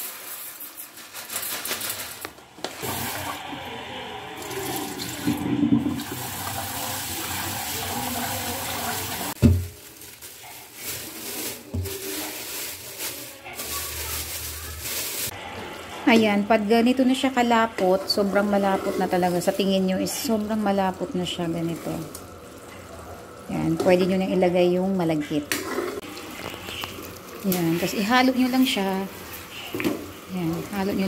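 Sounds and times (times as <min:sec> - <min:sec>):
tap water running into pot: 0:04.4 - 0:09.5.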